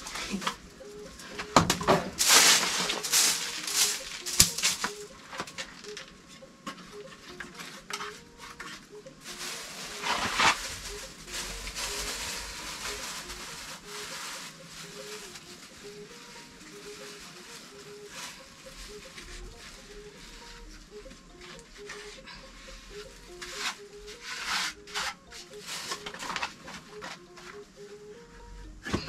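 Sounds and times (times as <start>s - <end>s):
broom sweeping dirt floor: 2.1s - 5.1s, 7.0s - 20.6s, 22.9s - 27.1s.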